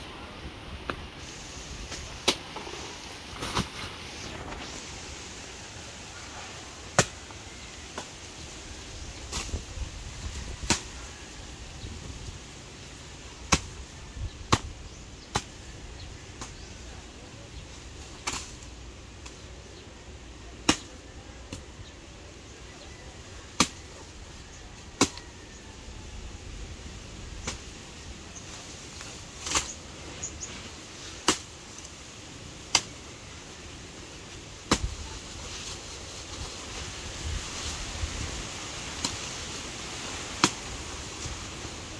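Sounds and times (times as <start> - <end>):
knife chopping banana trunk: 23.6 - 23.8, 34.7 - 34.9.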